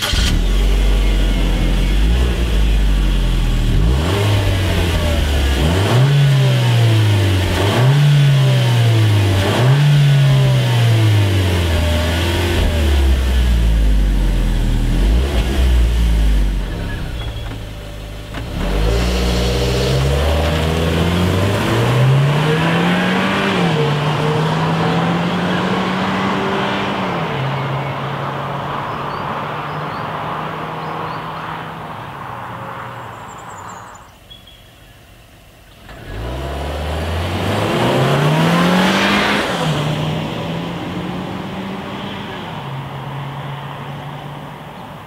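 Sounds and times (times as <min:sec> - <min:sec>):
car engine revving under acceleration: 0:00.0 - 0:28.6, 0:35.8 - 0:43.1.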